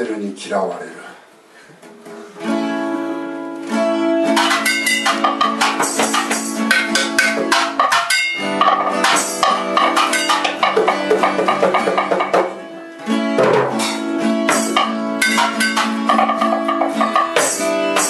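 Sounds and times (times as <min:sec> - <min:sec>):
acoustic guitar strumming: 0:01.8 - 0:18.0
hand drums: 0:04.3 - 0:18.0.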